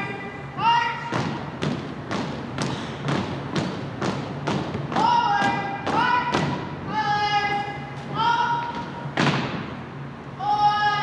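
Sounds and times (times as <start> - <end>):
marching footfalls on wooden floor: 1.1 - 6.6
person calling drill commands: 5.0 - 8.8.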